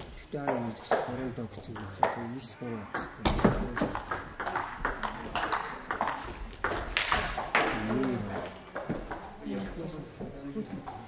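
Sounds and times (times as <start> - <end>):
table tennis ball clicking: 3.8 - 9.4.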